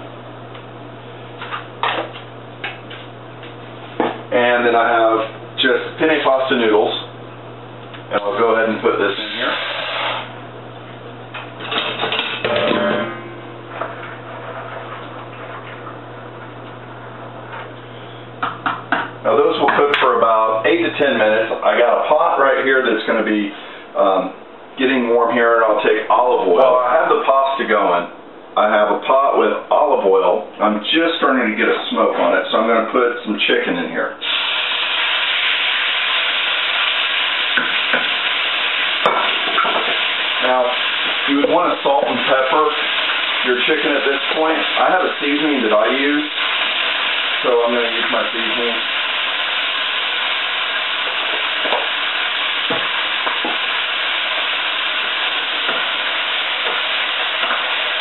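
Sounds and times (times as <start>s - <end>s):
steady low hum: 0.0s - 34.2s
chicken frying in oil: 34.2s - 58.0s.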